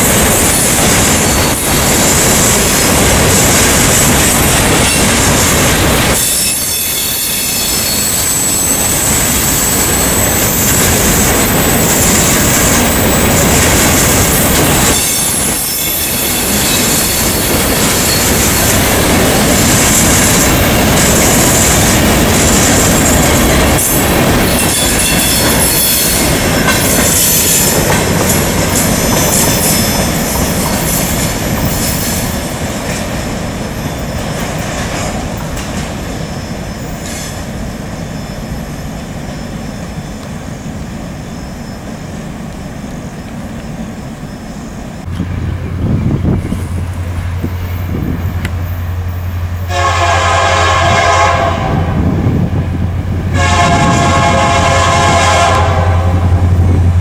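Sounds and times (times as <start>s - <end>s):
freight train wheels on rails: 0.0s - 57.0s
wheel squeal: 6.1s - 12.1s, 14.3s - 18.7s.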